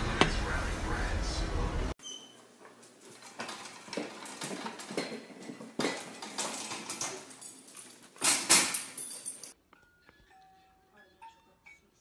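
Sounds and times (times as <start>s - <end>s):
metal pet gate rattling: 3.2s - 9.5s.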